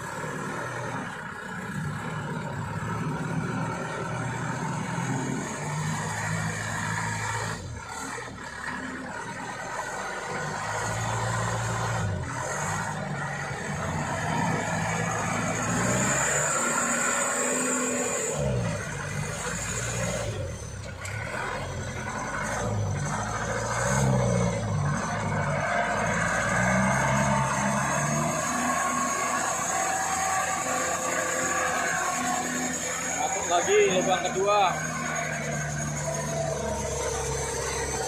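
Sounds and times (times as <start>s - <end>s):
truck engine revving under load: 0.0s - 38.0s.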